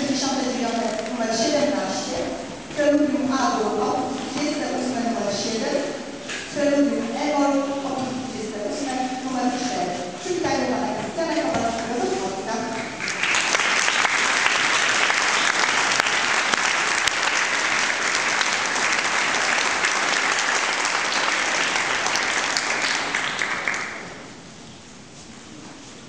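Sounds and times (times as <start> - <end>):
audience applauding: 12.8 - 24.3.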